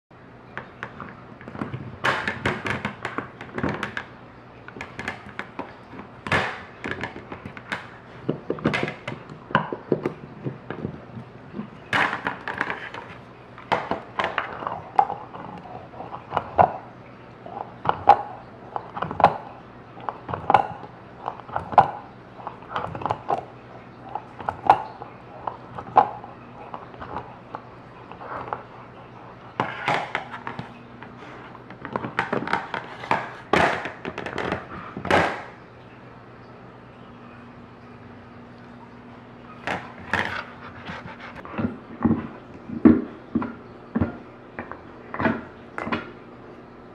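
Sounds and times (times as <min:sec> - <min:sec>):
dog gnawing hard chew: 0:39.6 - 0:42.2.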